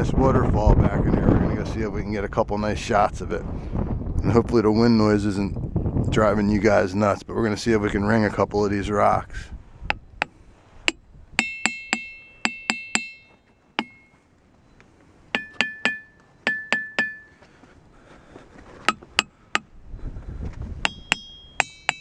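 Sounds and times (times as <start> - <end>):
hammer tapping rocks ringing: 9.9 - 14.2, 15.3 - 17.4, 18.8 - 19.7, 20.8 - 22.0.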